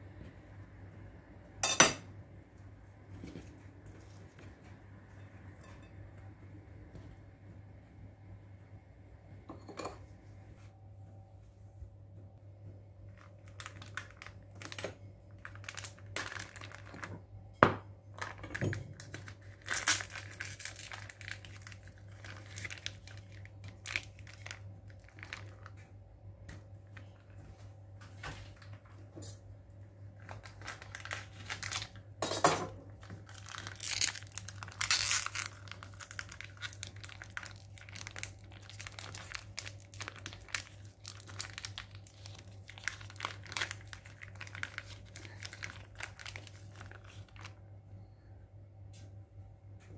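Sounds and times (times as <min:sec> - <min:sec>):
plastic pouch crinkling and tearing: 0:13.1 - 0:17.1, 0:18.2 - 0:25.9, 0:30.2 - 0:32.1, 0:33.0 - 0:47.6.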